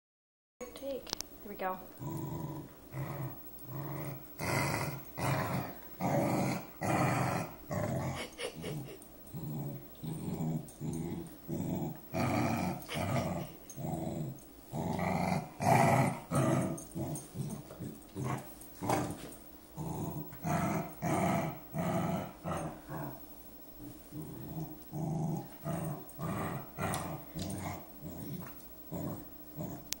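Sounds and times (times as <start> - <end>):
dog growling contentedly: 1.9 - 30.0.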